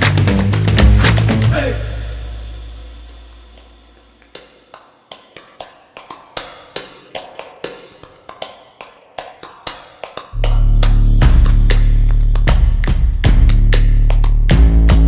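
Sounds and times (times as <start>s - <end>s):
background music: 0.0s - 4.0s, 10.4s - 15.0s.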